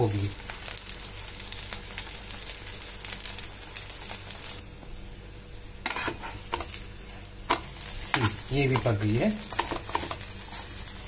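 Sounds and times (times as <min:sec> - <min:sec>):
oil sizzling in a pan: 0:00.0 - 0:11.0
spatula scraping a pan: 0:05.8 - 0:06.8, 0:09.5 - 0:10.9.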